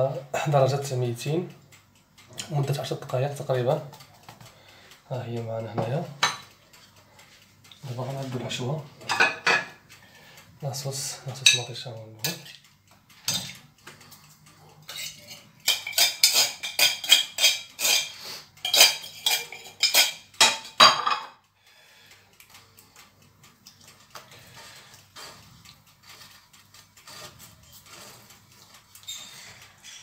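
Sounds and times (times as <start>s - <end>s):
spoon clinking against dishes: 14.9s - 21.3s.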